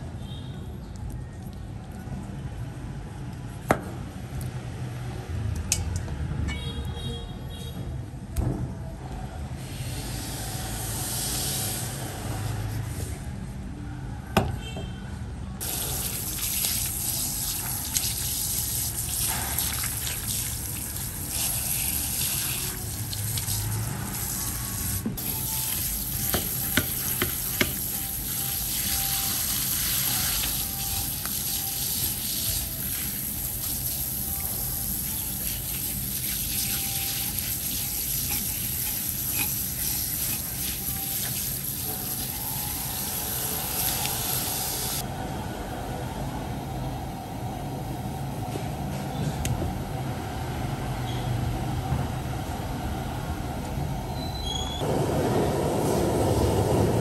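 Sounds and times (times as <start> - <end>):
knife scraping and cutting: 36.8 - 41.4.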